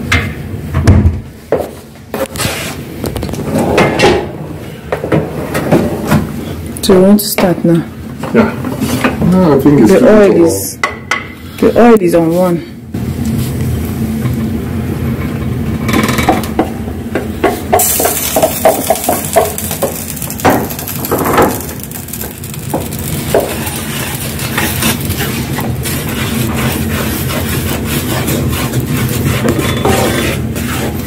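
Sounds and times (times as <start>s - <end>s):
steady low hum: 0.0s - 31.0s
wooden spatula knocking and scraping pot: 16.2s - 21.6s, 22.2s - 31.0s
seeds sizzling in hot oil: 17.7s - 31.0s.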